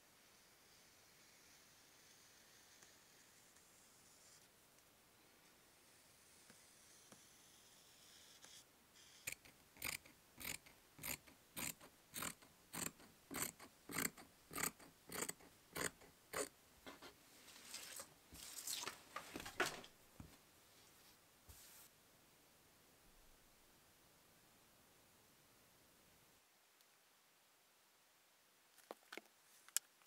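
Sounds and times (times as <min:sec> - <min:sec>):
scissors snipping fabric: 0:09.3 - 0:16.5
fabric rustling: 0:17.3 - 0:21.9.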